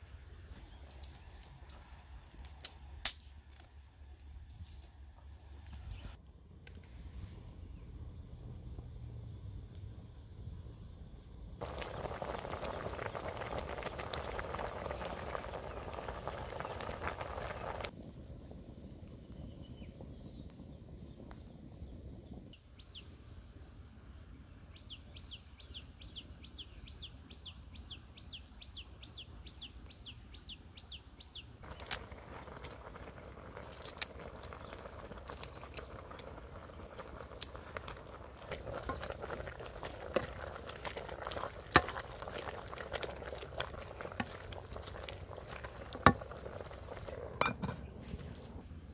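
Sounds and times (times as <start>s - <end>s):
water boiling hard: 11.5s - 22.5s, 31.6s - 48.9s
bird chirping: 22.8s - 31.8s.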